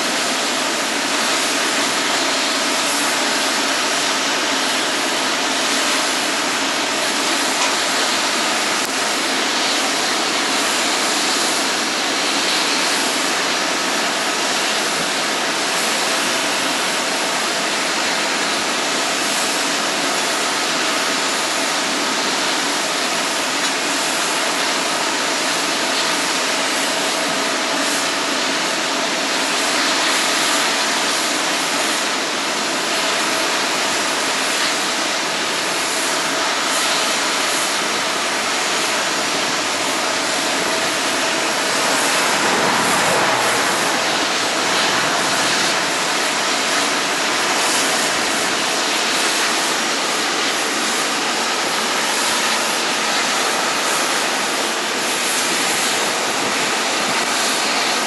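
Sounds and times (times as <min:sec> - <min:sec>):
jet engines roaring: 0:00.0 - 0:58.0
faint engine whine: 0:35.9 - 0:48.6.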